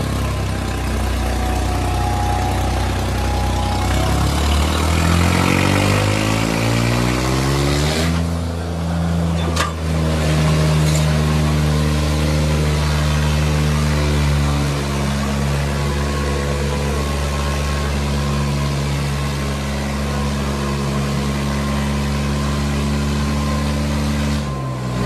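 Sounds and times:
tractor diesel engines revving: 0.0 - 25.0.

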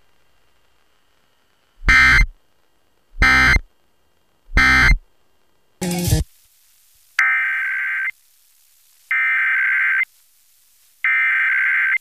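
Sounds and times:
digital data tone bursts: 1.9 - 2.3, 3.2 - 3.6, 4.6 - 5.0.

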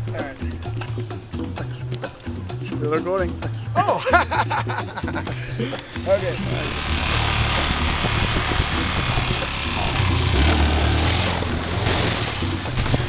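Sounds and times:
small motorcycle engine: 5.9 - 13.0.

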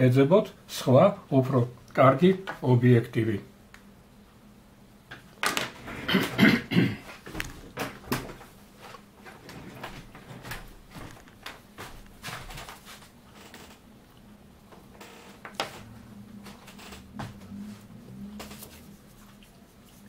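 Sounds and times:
low steady hum: 0.0 - 20.0
faint clicks and light knocks: 7.3 - 17.4.

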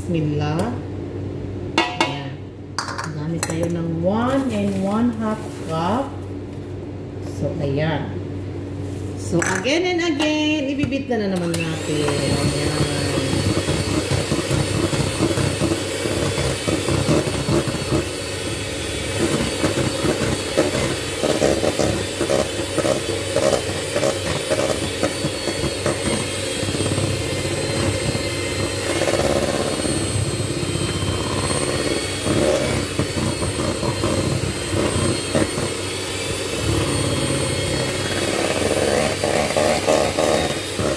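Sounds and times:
electric hand mixer running: 11.4 - 40.9.

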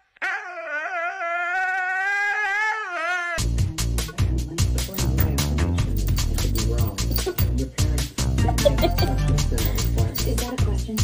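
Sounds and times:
electronic music with heavy bass: 8.4 - 9.6.

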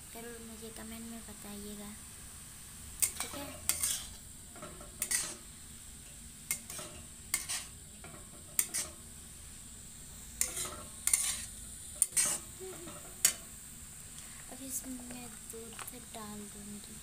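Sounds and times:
faint sizzle: 0.0 - 17.0
spoon scraping a pan: 3.0 - 9.1, 10.3 - 13.6.

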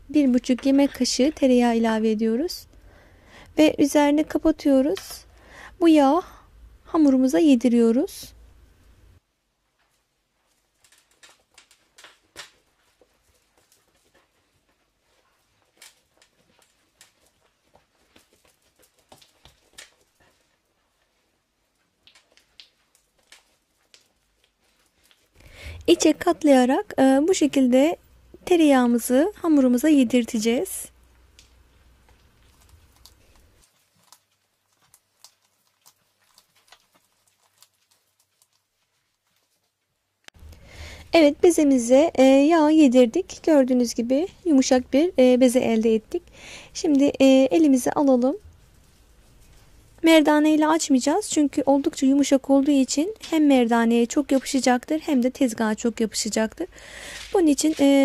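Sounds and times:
hands kneading dough: 9.0 - 58.0
hands slapping dough: 10.8 - 20.5, 21.9 - 25.4.

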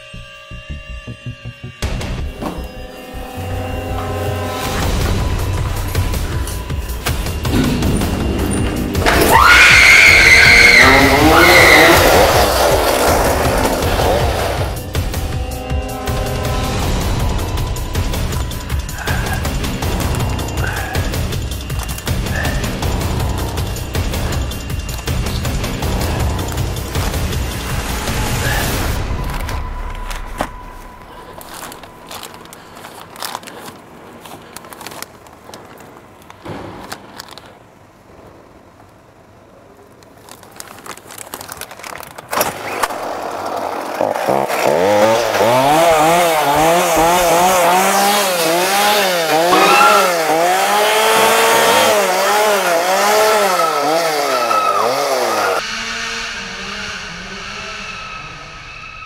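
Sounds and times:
chainsaw revving: 10.4 - 17.5, 43.8 - 55.9.

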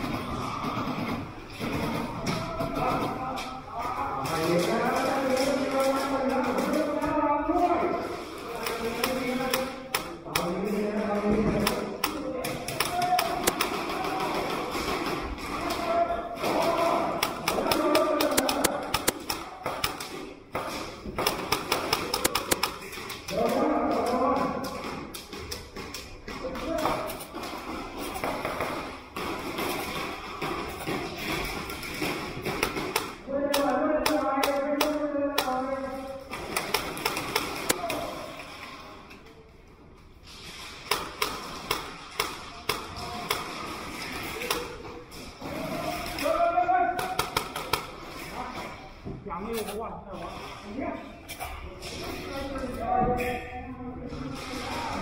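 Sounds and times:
airsoft guns firing: 0.0 - 3.2, 11.4 - 25.6, 26.6 - 38.3, 40.7 - 48.1.

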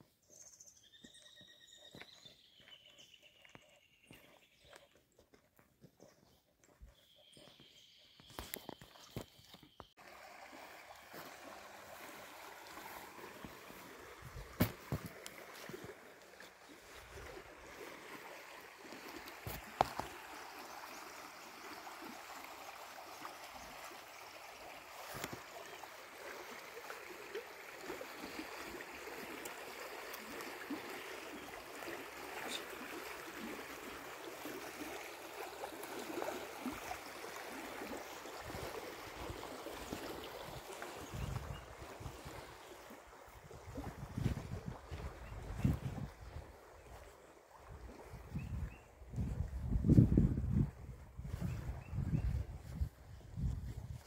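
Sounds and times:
creek water babbling: 1.9 - 54.0.

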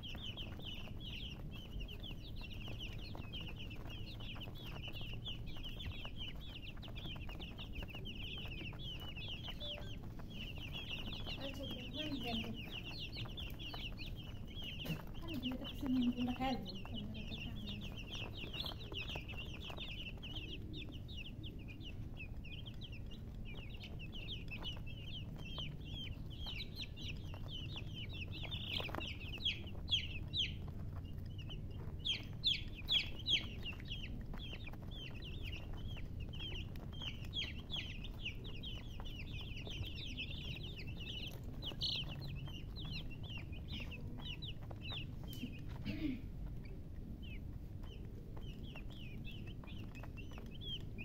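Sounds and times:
baby chicks peeping: 0.0 - 51.0.

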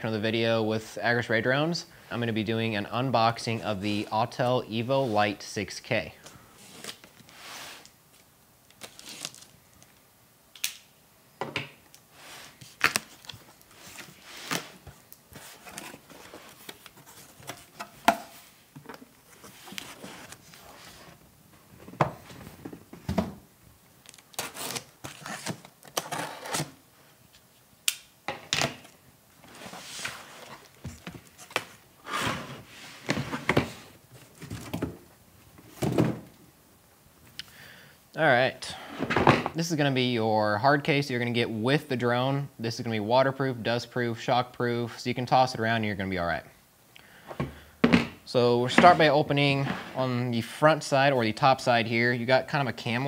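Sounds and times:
packing tape slit and torn: 8.7 - 10.9
cardboard flaps rustling: 12.5 - 23.4.

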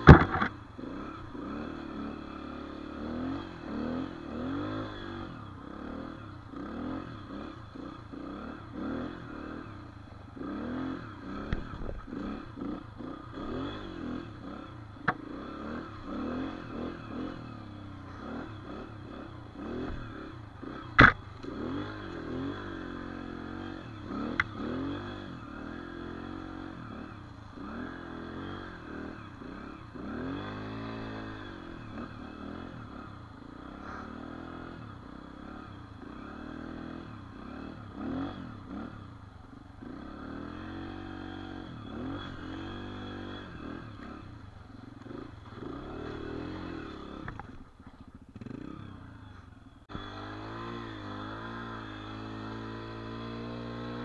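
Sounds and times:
dirt bike engine revving: 0.0 - 54.0
sharp knocks: 21.0 - 21.2.

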